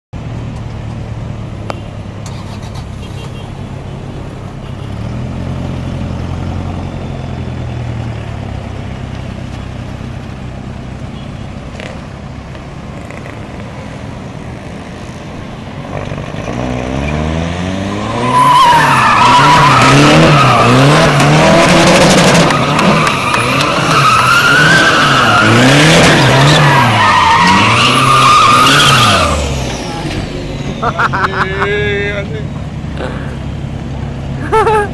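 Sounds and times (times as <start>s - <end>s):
diesel engine revving: 12.8s - 34.9s
tyres squealing on pavement: 16.2s - 32.6s.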